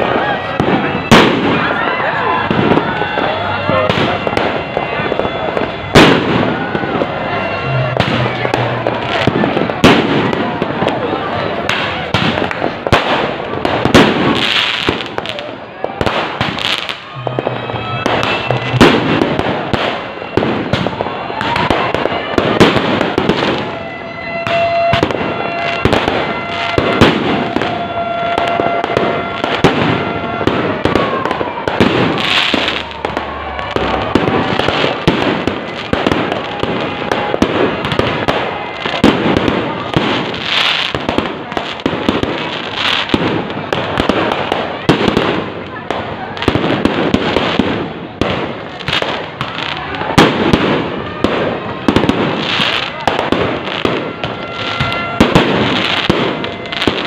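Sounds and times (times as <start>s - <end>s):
fireworks bangs and crackles: 0.0s - 57.0s.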